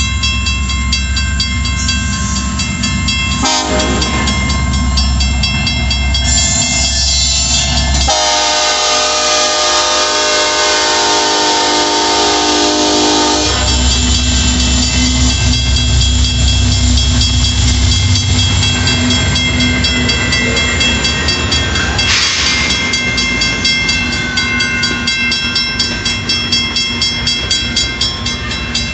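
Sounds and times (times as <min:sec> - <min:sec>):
crossing signal bell ringing: 0:00.0 - 0:28.9
train wheels clickety-clack: 0:01.7 - 0:09.2, 0:13.2 - 0:28.9
locomotive horn blast: 0:03.4 - 0:04.4, 0:08.1 - 0:13.9.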